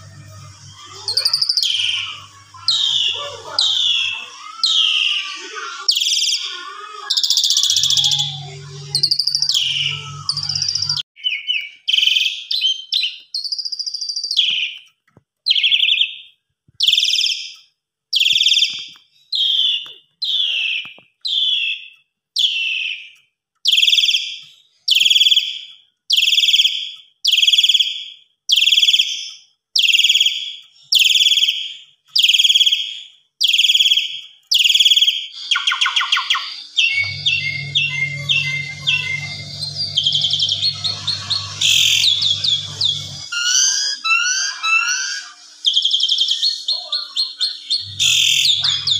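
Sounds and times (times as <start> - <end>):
bird singing: 0.0 - 14.9, 15.5 - 17.6, 18.2 - 48.9
low hum: 36.8 - 43.4.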